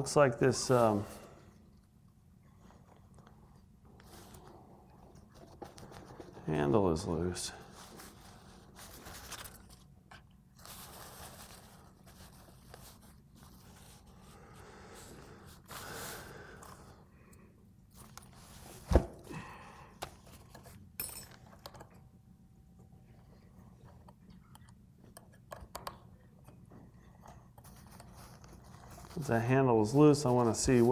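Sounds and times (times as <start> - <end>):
paper rustling: 7.7 - 14.3, 27.6 - 30.9.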